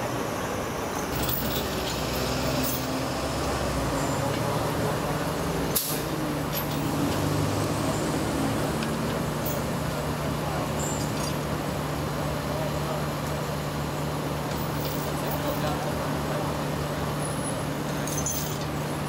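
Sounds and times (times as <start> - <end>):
diesel truck engine idling: 1.2 - 19.0
sharp air hiss: 5.8 - 6.2.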